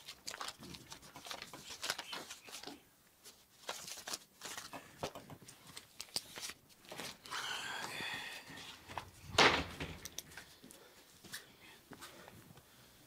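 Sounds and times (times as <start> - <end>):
paper banknotes rustling: 0.0 - 7.3.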